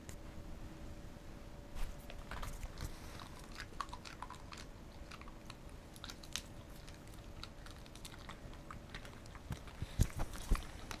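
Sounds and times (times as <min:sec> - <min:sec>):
dogs chewing and crunching treats: 0:02.0 - 0:11.0.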